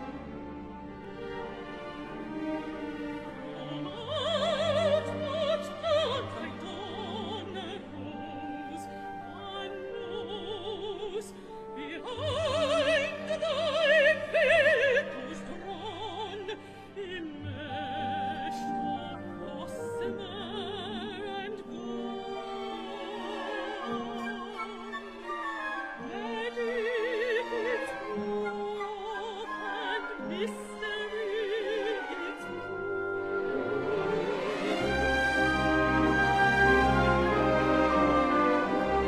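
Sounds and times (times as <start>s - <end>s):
orchestra: 0.0s - 39.0s
woman singing operatically: 3.3s - 34.3s.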